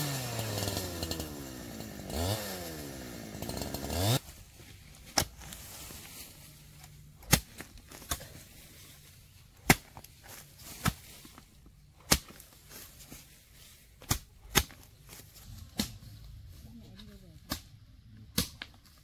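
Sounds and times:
hand tool striking bamboo: 5.1 - 5.6, 7.2 - 8.3, 9.6 - 11.1, 12.0 - 12.5, 14.0 - 16.1, 17.4 - 18.8.

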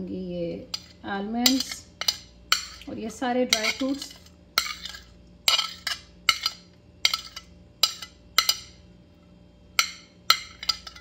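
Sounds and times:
metal spoon clinking on ceramic plate: 0.7 - 2.9, 3.5 - 8.8, 9.8 - 11.0.

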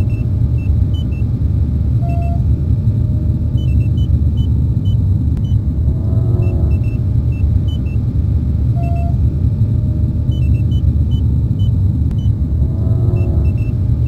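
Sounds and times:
loud low rumble: 0.0 - 14.0
held electronic tone: 2.0 - 2.5, 3.6 - 8.0, 8.7 - 9.3, 10.3 - 13.8
short high electronic beeps: 8.8 - 9.2.

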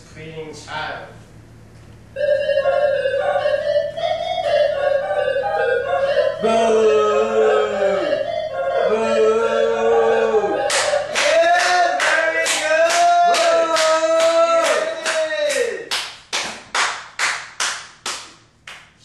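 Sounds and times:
rhythmic clapping: 2.6 - 6.4, 10.3 - 19.0.

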